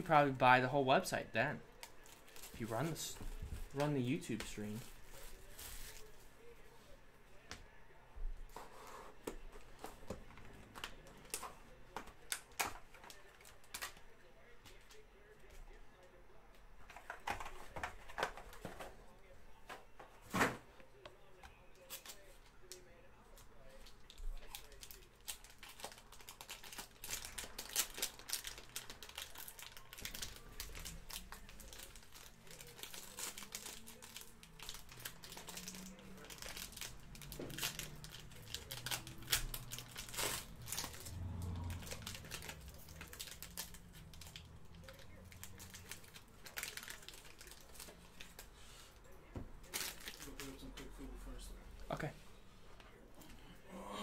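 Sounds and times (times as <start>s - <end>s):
foil wrappers crinkling and tearing: 1.7s - 6.4s, 23.8s - 48.5s, 49.6s - 50.8s.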